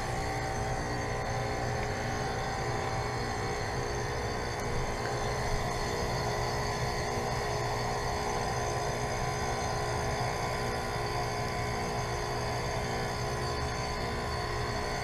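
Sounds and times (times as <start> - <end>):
compressor hum: 0.0 - 15.0.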